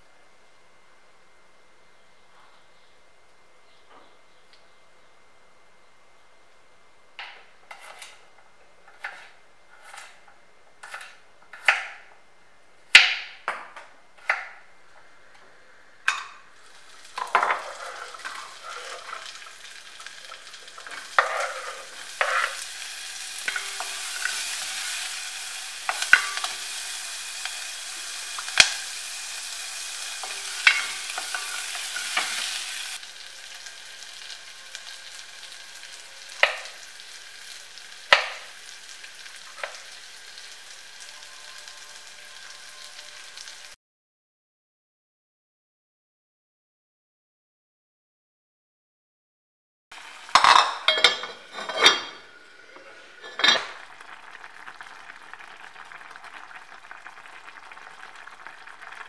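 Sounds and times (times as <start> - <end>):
onions sizzling in hot oil: 16.5 - 43.8, 49.9 - 59.0.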